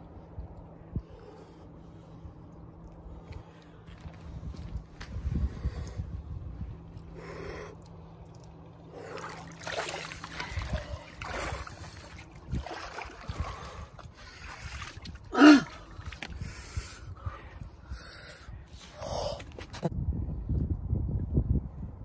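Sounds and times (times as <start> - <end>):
water sloshing and dripping: 7.7 - 16.8
man crying out: 15.3 - 15.8
man breathing hard: 15.3 - 19.6.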